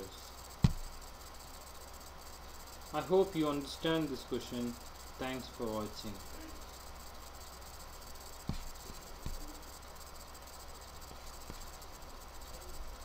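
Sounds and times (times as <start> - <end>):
background hiss: 0.0 - 13.0
high thin whine: 0.0 - 13.0.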